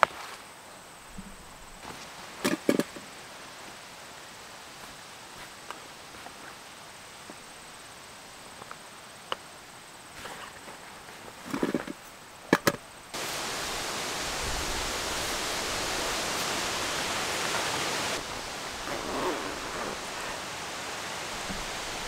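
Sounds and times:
steady rushing hiss: 0.0 - 22.0
cloth rustle: 16.0 - 22.0
canvas pouch rustling: 18.2 - 20.5.

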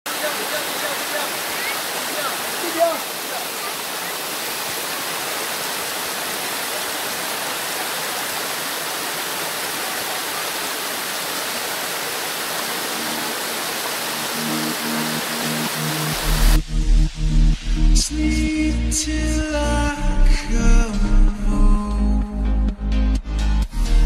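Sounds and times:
waterfall rushing and splashing: 0.0 - 16.6.

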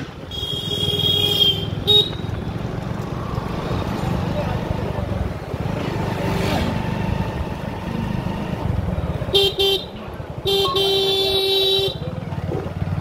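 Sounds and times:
motorcycle engine rumbling: 0.0 - 13.0
horn honking: 9.3 - 12.1.

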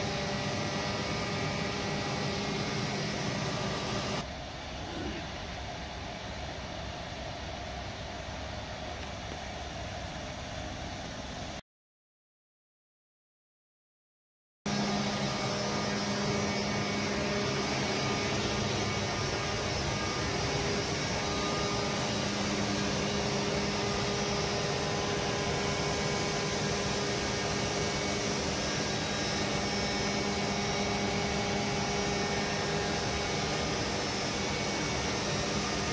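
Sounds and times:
air compressor running: 0.0 - 4.2, 14.7 - 35.9.

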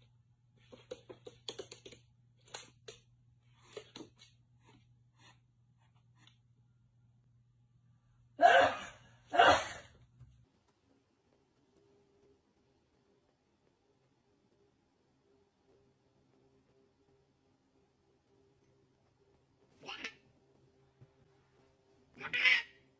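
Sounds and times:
faint clicks and taps: 0.5 - 6.5, 10.0 - 14.9.

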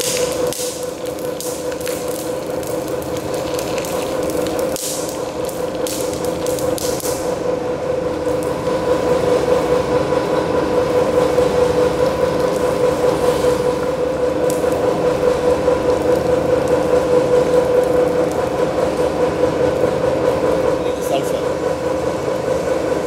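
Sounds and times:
powder hissing onto rolls: 0.0 - 9.6
rubber mill humming: 0.0 - 23.0.

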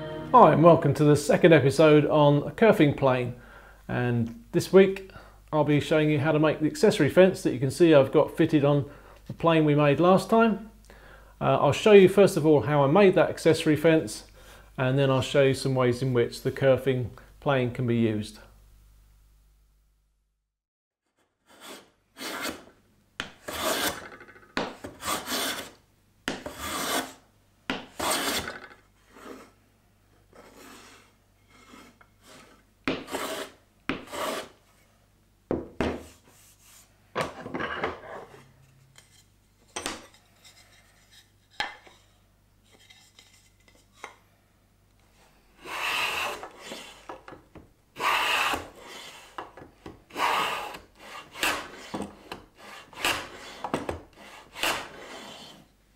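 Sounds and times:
hand plane strokes on wood: 21.5 - 22.7, 23.4 - 24.1, 24.8 - 25.7, 26.4 - 27.2, 27.9 - 28.5, 30.3 - 34.6, 45.6 - 47.2, 48.0 - 49.5, 50.1 - 55.7.

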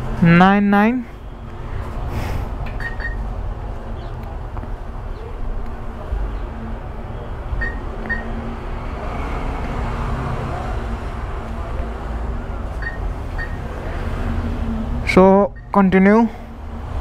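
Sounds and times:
steady low rumble: 1.0 - 9.1
keypad beeps: 2.8 - 3.2, 7.6 - 8.3, 12.8 - 13.6.

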